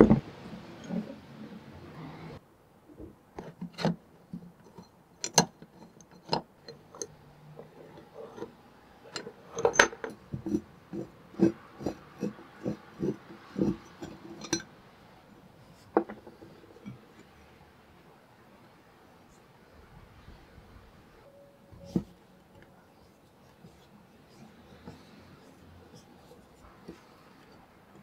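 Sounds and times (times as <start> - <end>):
metal vise parts clinking: 4.6 - 7.2, 9.1 - 12.3, 13.0 - 14.7.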